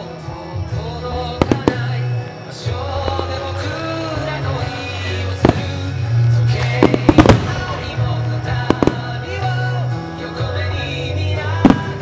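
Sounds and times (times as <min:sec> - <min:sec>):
loud festival music: 0:00.0 - 0:12.0
fireworks bangs: 0:01.2 - 0:02.3, 0:04.7 - 0:09.8, 0:11.5 - 0:12.0.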